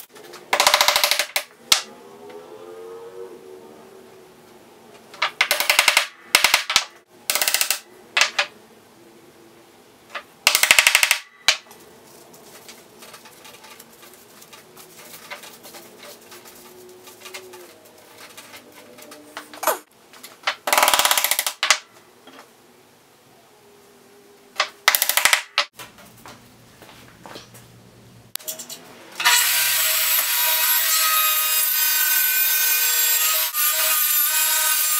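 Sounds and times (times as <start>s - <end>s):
hammer tapping wooden pins: 0.5s - 1.8s, 5.2s - 8.5s.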